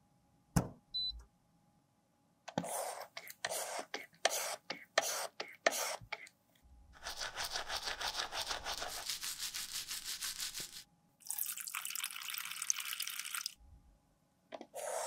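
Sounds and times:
brush scrubbing plastic container: 7.0 - 10.8.

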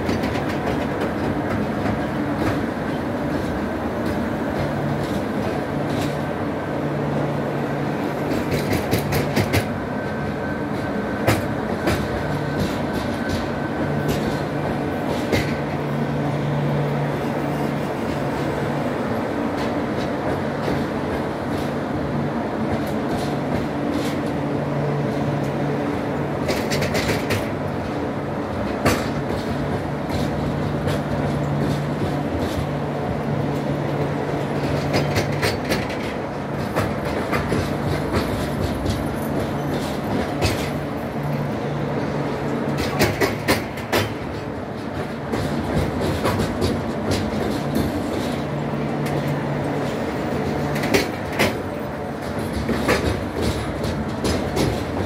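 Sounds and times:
train coaches rumbling past: 0.0 - 55.0
wheels clicking over rail joints: 8.2 - 9.8, 26.4 - 41.5, 42.2 - 55.0.

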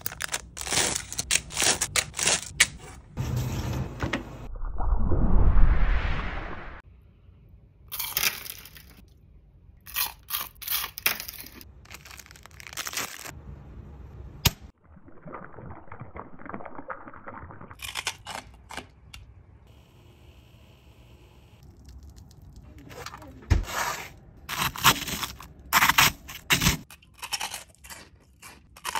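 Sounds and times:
candy crunching and snapping: 0.0 - 2.8, 7.9 - 9.0, 9.9 - 13.3, 17.8 - 19.1, 24.5 - 28.9.

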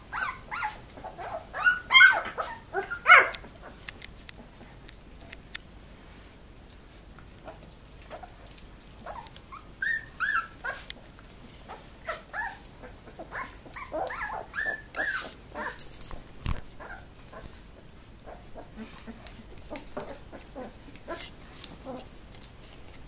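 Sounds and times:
puppies squeaking and yelping: 0.0 - 3.9, 7.5 - 8.4, 9.0 - 22.1.

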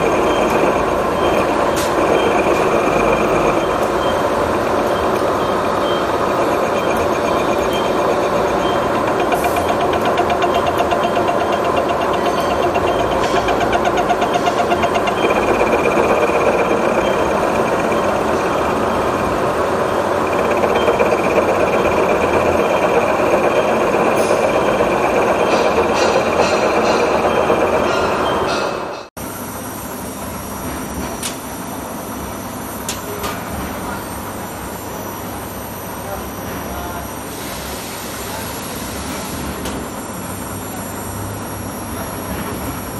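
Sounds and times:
milling cutter cutting metal: 0.0 - 28.9
machinery rumble and hum: 0.0 - 29.4.

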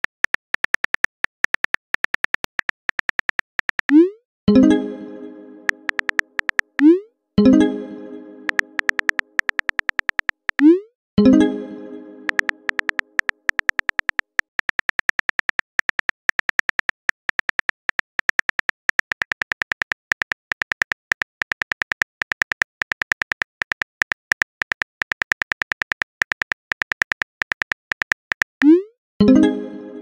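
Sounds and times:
phone keyboard typing clicks: 0.0 - 4.1, 5.6 - 7.0, 8.5 - 10.8, 12.2 - 28.7.

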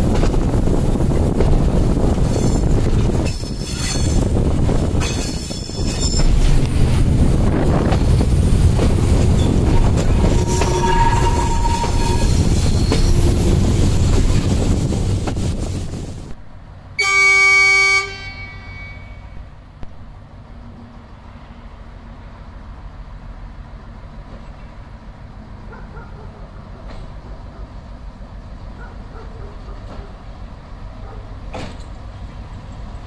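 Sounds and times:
diesel railcar rumble: 0.0 - 33.0
train wheels rumbling on track: 0.0 - 33.0
railcar horn blast: 9.4 - 13.0, 17.0 - 19.4
faint wheel squeal: 9.4 - 13.2.

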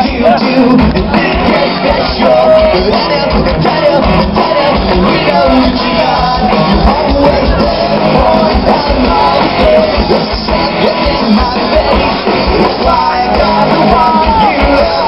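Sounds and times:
bass guitar: 0.0 - 15.0
distorted electric guitars: 0.0 - 15.0
drums: 0.0 - 15.0
pop-punk band playing live: 0.0 - 15.0.

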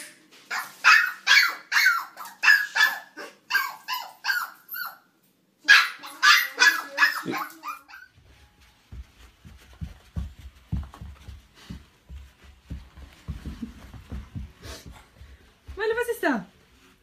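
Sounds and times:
puppy yapping: 0.5 - 8.1.

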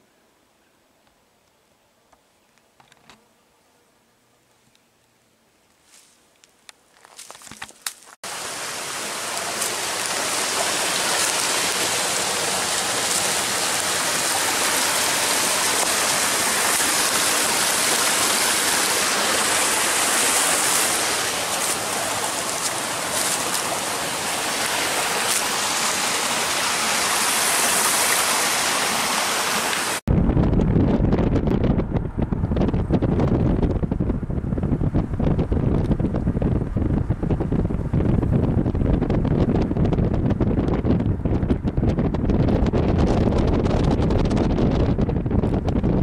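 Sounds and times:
footsteps on leaf litter: 5.8 - 6.2, 6.9 - 8.2, 9.2 - 14.5, 18.7 - 26.0
creek rushing over boulders: 8.2 - 30.0.

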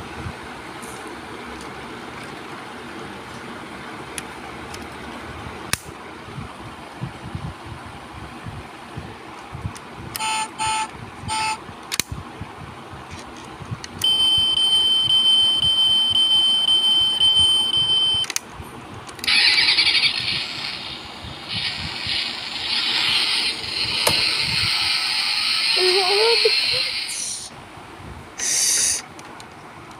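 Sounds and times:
high-pitched tone: 10.2 - 11.6
toy short beeps: 10.2 - 11.6
engine start and rev effect: 19.2 - 21.0.

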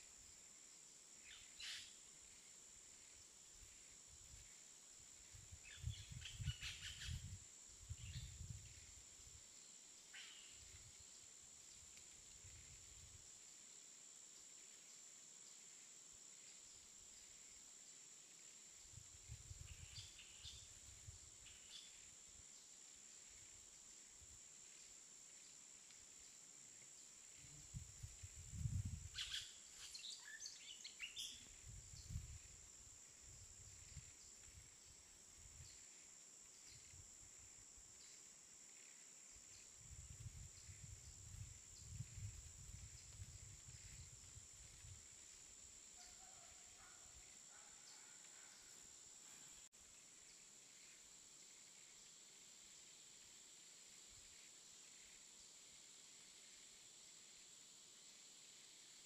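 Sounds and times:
wind gusting through forest: 0.0 - 14.6, 16.7 - 26.4, 27.1 - 47.4
faint high-pitched hiss: 0.0 - 59.0
faint bird chirps: 1.2 - 2.1, 5.3 - 9.0, 9.6 - 11.3, 19.5 - 22.2, 26.2 - 32.6.

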